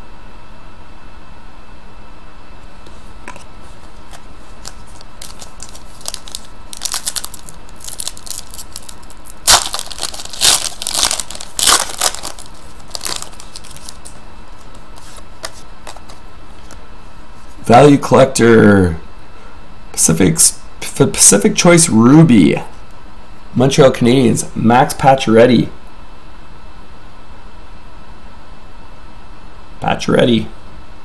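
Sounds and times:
steady background hiss: 0:00.0 - 0:31.0
foil wrapper tearing and crinkling: 0:04.1 - 0:16.2.

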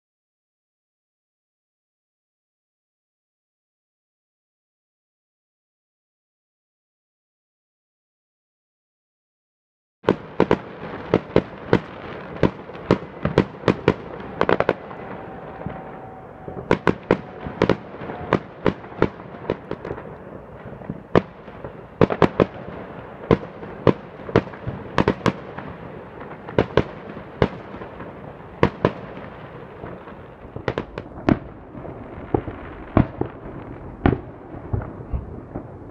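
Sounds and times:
fireworks bangs: 0:10.1 - 0:35.9
fireworks crackling: 0:10.1 - 0:35.9.

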